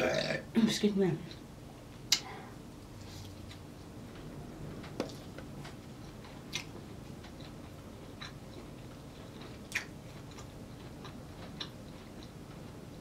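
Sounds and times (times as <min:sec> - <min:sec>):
person chewing food: 0:04.8 - 0:13.0.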